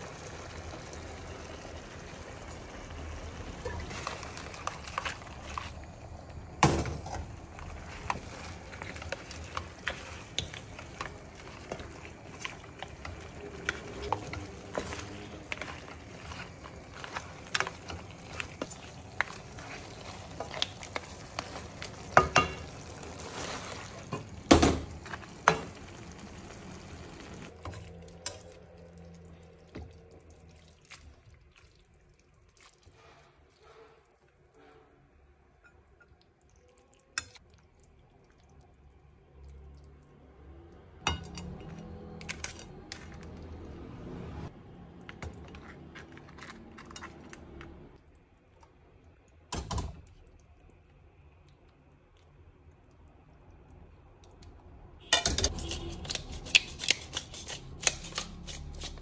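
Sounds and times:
wooden spoon stirring in a pan: 0:00.0 - 0:26.6, 0:55.5 - 0:59.0
food sizzling in a pan: 0:00.0 - 0:28.4.

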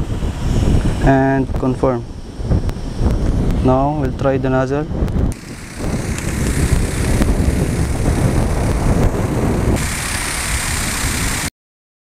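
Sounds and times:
pump low rumble: 0:05.1 - 0:11.5
spray hissing: 0:05.3 - 0:11.5.

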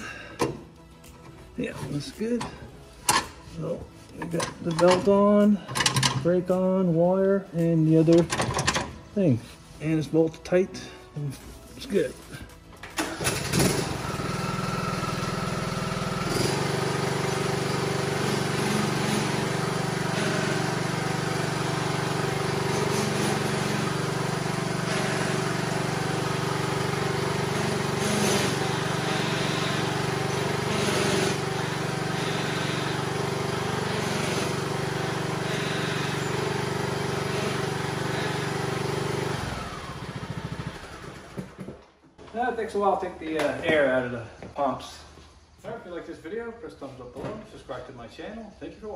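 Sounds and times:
lawn tractor engine running: 0:12.9 - 0:41.6.

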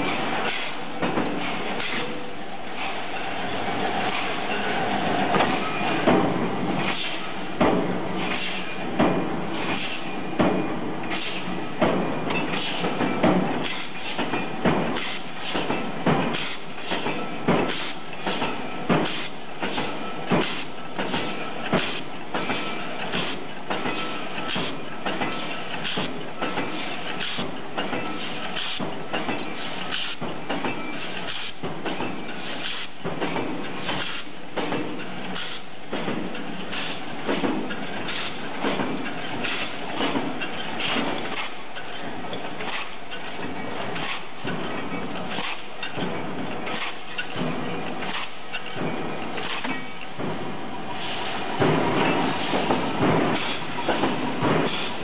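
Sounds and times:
steady machine noise: 0:00.0 - 0:26.7.

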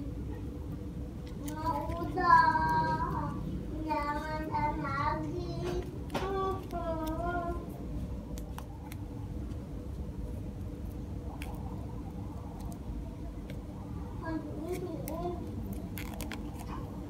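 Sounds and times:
low background rumble: 0:00.0 - 0:17.0
child singing: 0:01.4 - 0:07.7, 0:14.2 - 0:15.5
plastic strip crinkling: 0:05.6 - 0:07.7, 0:14.6 - 0:17.0.

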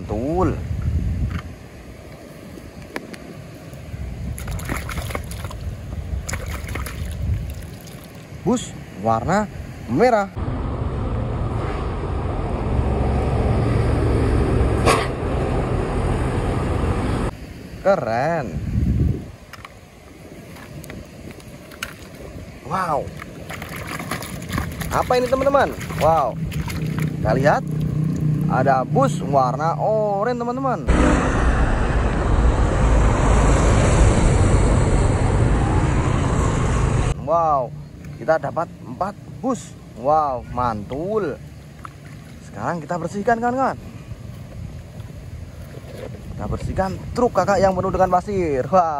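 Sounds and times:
highway traffic rush: 0:00.0 - 0:48.9
traffic rumbling past: 0:10.3 - 0:17.4, 0:24.8 - 0:30.2, 0:30.8 - 0:40.0
bus passing: 0:10.4 - 0:17.3, 0:30.9 - 0:37.2
motorcycles passing: 0:24.8 - 0:30.2.

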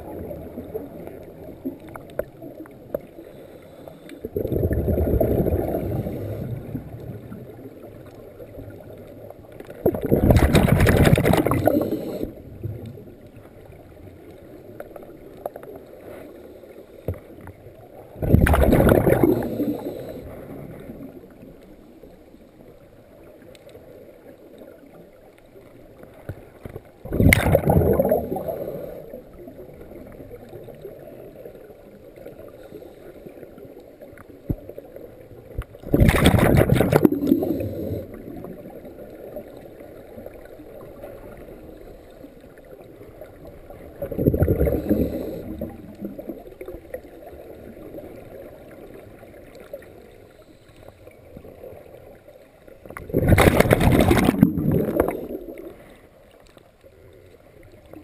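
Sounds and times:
steady underwater noise: 0:00.0 - 0:58.0
regulator exhalation bubbles: 0:09.9 - 0:12.3, 0:18.2 - 0:20.2, 0:27.1 - 0:29.0, 0:44.0 - 0:45.8.

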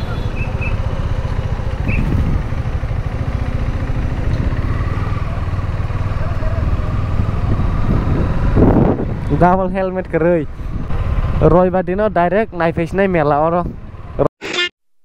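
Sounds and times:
motorcycle engine running: 0:00.0 - 0:09.4.

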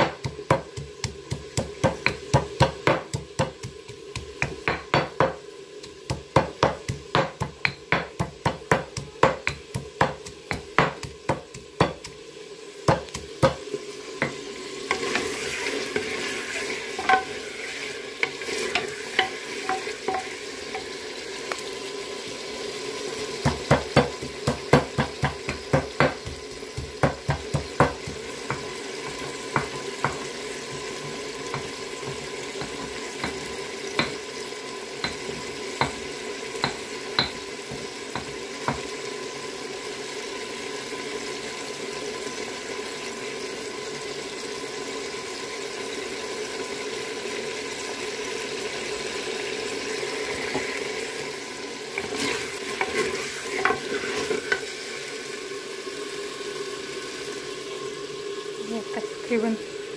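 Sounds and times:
wooden spoon knocking against pot: 0:00.0 - 0:05.4, 0:06.1 - 0:12.1, 0:23.4 - 0:30.9, 0:36.6 - 0:38.8
chicken sizzling in oil: 0:00.0 - 0:59.9.

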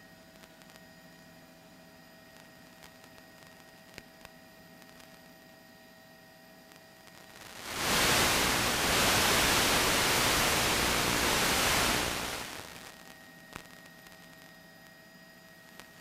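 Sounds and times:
faint steady hum: 0:00.0 - 0:16.0
loud static hiss: 0:07.1 - 0:14.2.

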